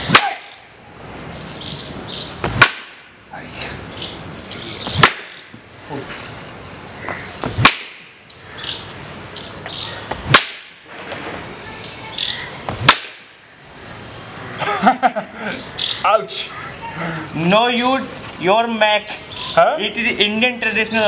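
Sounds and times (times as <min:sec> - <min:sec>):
stick cracking on stone: 0:02.5 - 0:03.0, 0:04.9 - 0:05.4, 0:07.5 - 0:08.0, 0:10.2 - 0:10.7, 0:12.8 - 0:13.2.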